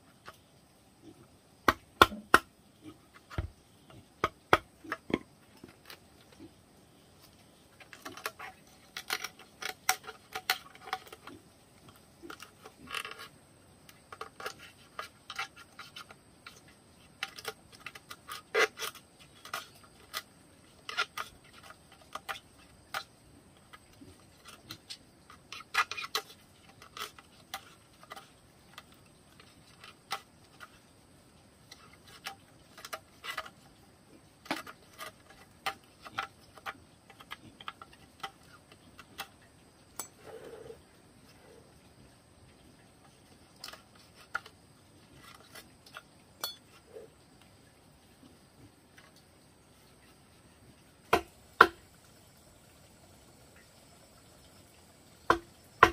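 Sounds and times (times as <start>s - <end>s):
knife scraping bamboo: 1.1s - 6.6s, 7.2s - 41.4s, 43.0s - 47.1s.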